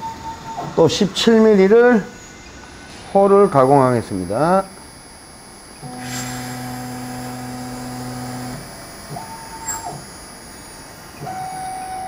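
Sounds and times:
boring machine motor: 0:03.1 - 0:12.0.

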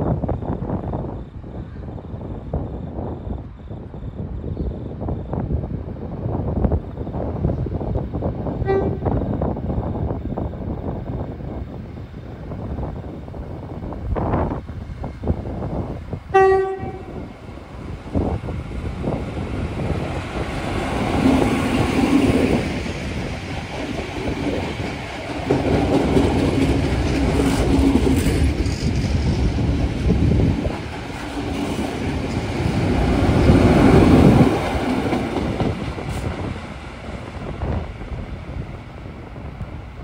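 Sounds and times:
diesel train passing: 0:00.0 - 0:40.0.

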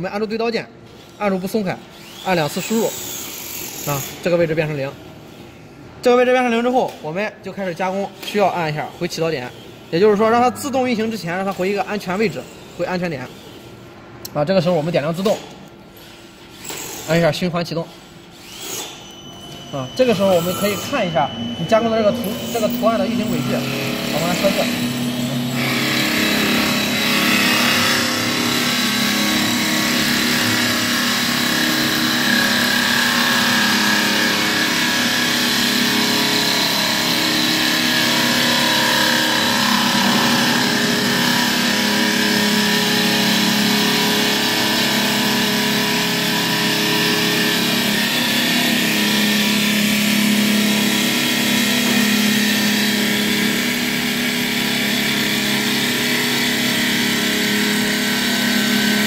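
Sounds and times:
wood lathe machine hum and whir: 0:01.9 - 0:03.9, 0:20.2 - 0:59.0.

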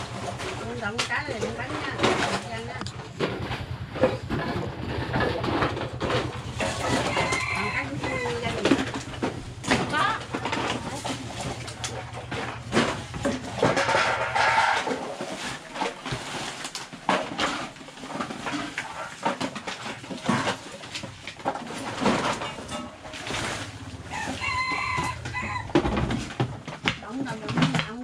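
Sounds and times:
plastic bag rustling: 0:05.8 - 0:28.0.

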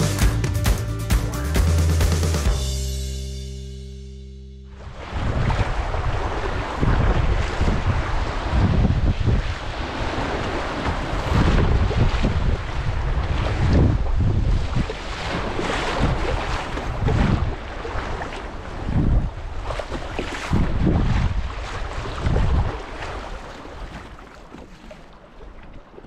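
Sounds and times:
wind buffeting microphone: 0:04.9 - 0:24.2.

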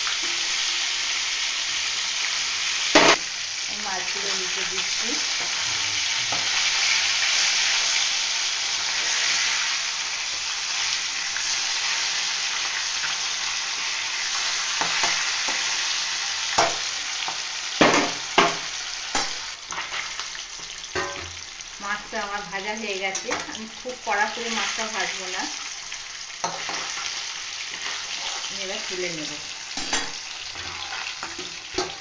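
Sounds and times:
fish sizzling in oil: 0:00.0 - 0:32.0
metal spatula scraping pan: 0:27.7 - 0:28.6, 0:29.8 - 0:32.0.

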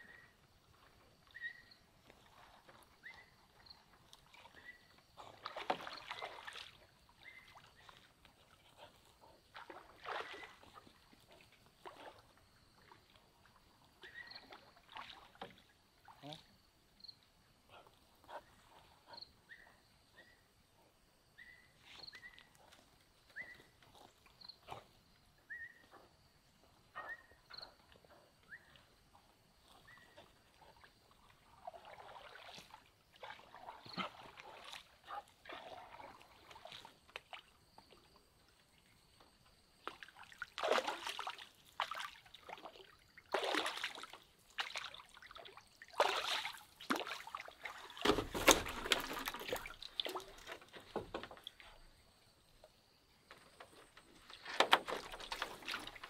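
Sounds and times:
pole sloshing and splashing water: 0:01.4 - 0:16.1, 0:29.8 - 0:38.2, 0:39.8 - 0:51.8, 0:54.1 - 0:56.0.

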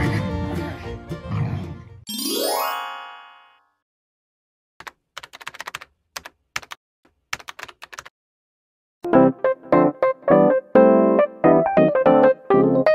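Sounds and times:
rising chime: 0:02.1 - 0:03.6
keyboard typing clicks: 0:04.8 - 0:08.1.

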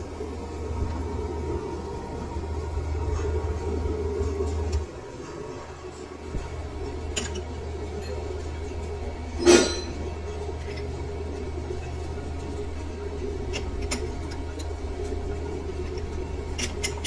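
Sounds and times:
steady low hum: 0:00.0 - 0:17.0
metal tools clinking: 0:09.4 - 0:10.0
loud ringing clank: 0:09.4 - 0:10.1.

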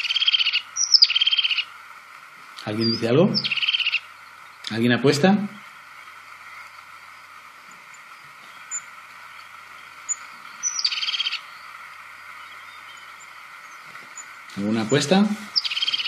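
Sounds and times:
bird high short calls: 0:00.0 - 0:01.7, 0:02.8 - 0:04.2, 0:09.7 - 0:16.0
bird rolling trill: 0:00.0 - 0:02.4, 0:03.4 - 0:04.6, 0:05.6 - 0:14.6, 0:15.5 - 0:16.0.

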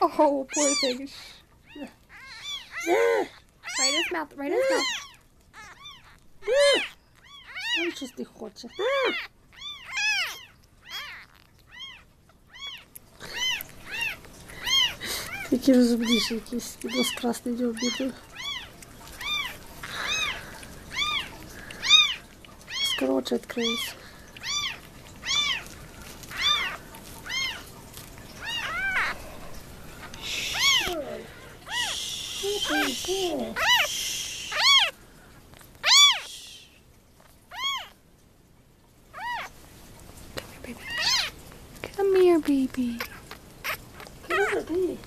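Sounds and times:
kitten mewing: 0:00.0 - 0:35.0, 0:35.6 - 0:36.8, 0:37.5 - 0:38.0, 0:39.2 - 0:39.6, 0:40.7 - 0:41.4, 0:42.9 - 0:44.8.

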